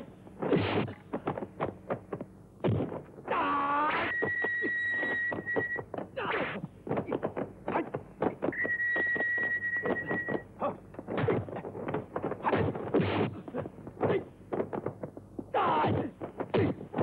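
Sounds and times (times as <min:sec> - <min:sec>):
punch and kick impacts: 0:00.4 - 0:03.1, 0:11.1 - 0:14.8, 0:15.8 - 0:17.0.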